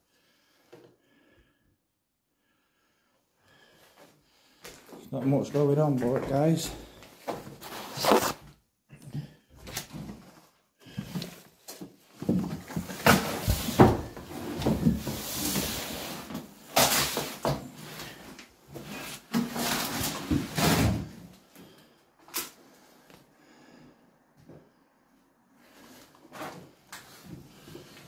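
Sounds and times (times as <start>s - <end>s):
rustling scrape: 7.4s - 8.4s, 13.2s - 17.4s.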